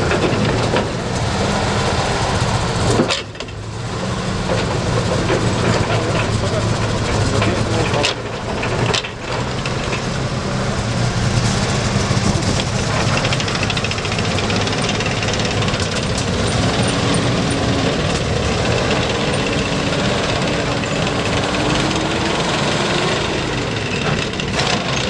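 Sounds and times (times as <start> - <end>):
vehicle clunk: 0.0 - 1.3, 2.8 - 3.6, 4.4 - 10.3, 11.4 - 25.0
vehicle engine running: 0.0 - 25.0
steel track links clattering: 4.4 - 25.0.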